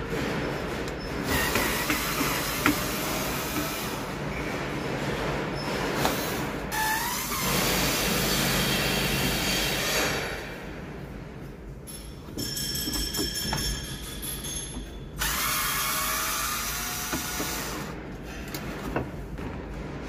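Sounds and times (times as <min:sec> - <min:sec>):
cordless drill running: 0:15.2 - 0:17.9.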